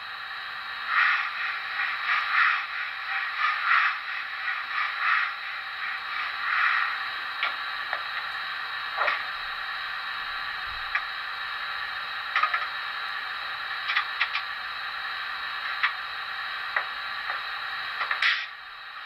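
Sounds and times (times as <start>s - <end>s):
steady hiss: 0.0s - 19.0s.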